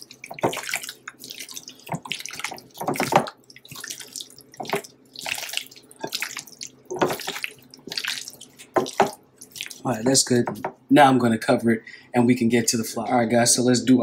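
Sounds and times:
wet squelches of raw chicken: 0.0s - 10.0s.

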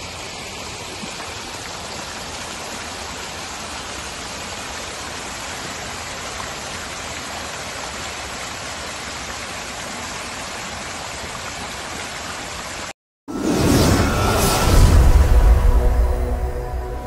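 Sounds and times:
fountain water splashing: 0.0s - 12.9s.

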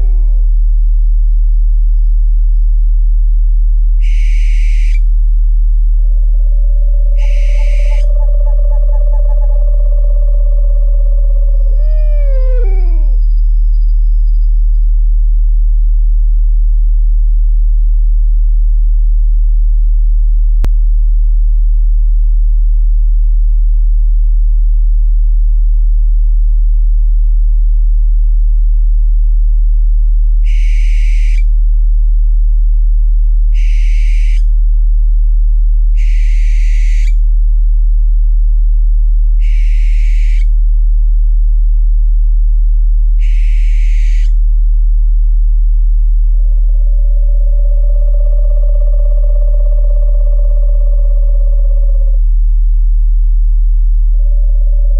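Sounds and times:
owl calls: 0.0s - 0.5s, 4.0s - 5.2s, 6.1s - 13.4s, 30.4s - 31.5s, 33.5s - 34.5s, 36.0s - 37.2s, 39.4s - 40.6s, 43.2s - 44.4s, 46.7s - 52.2s, 54.1s - 54.9s
deep steady hum: 0.0s - 30.7s, 31.4s - 33.8s, 34.4s - 54.9s.

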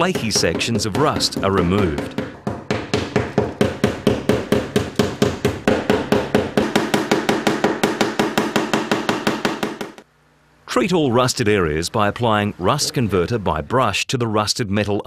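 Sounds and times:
hammer tapping steel panel: 0.0s - 10.0s.

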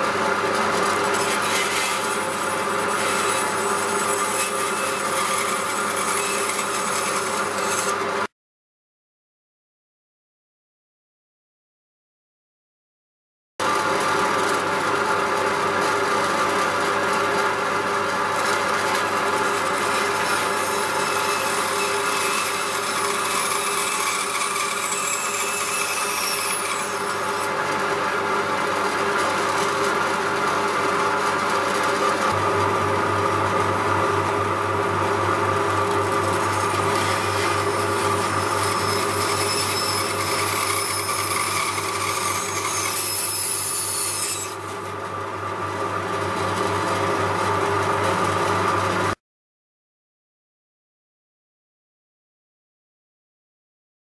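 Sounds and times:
bandsaw cutting wood: 0.4s - 8.3s, 18.2s - 32.8s, 34.2s - 44.9s.

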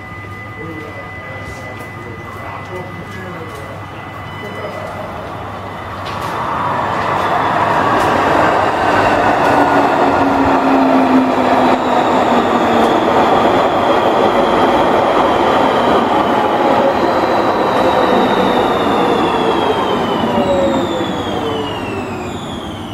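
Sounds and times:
train rolling on rails: 0.0s - 22.9s
whining tones falling in pitch: 0.0s - 22.9s.

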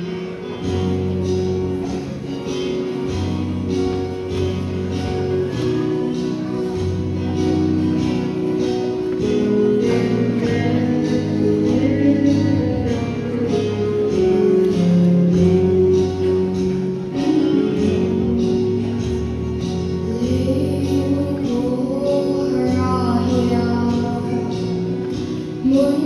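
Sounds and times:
guitar: 0.0s - 26.0s.

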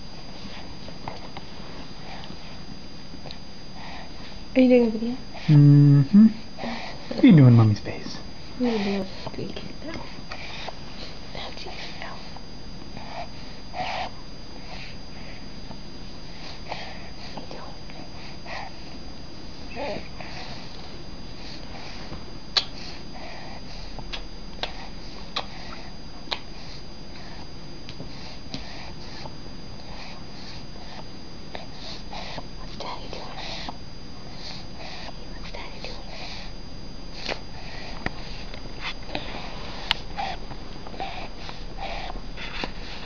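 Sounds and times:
baby sucking and breathing: 24.1s - 26.8s, 37.1s - 43.0s.

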